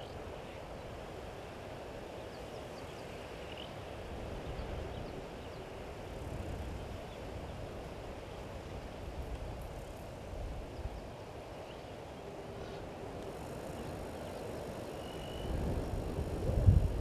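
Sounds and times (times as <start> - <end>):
wind rumble on microphone: 3.8 - 11.4, 12.4 - 17.0.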